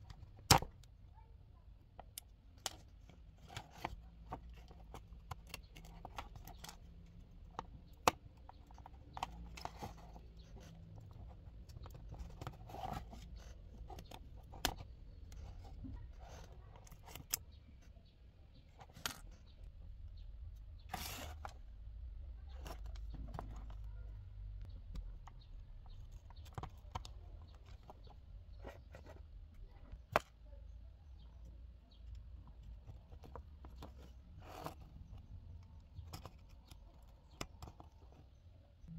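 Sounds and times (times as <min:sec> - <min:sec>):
plastic case clicks and scrapes: 0:02.0 - 0:17.9, 0:18.5 - 0:19.6, 0:22.5 - 0:30.4.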